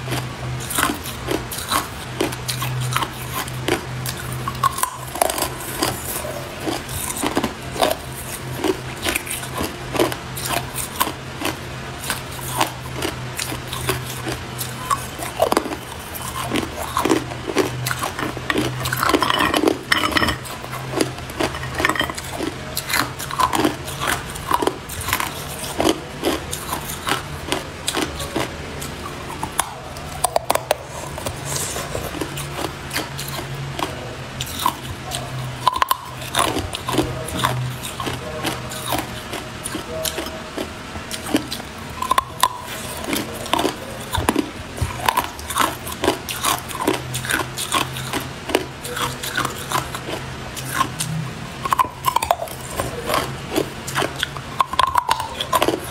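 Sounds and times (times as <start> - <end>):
steady low hum: 0.0 - 55.9
ice clinking against glass: 19.1 - 20.5, 21.4 - 22.2.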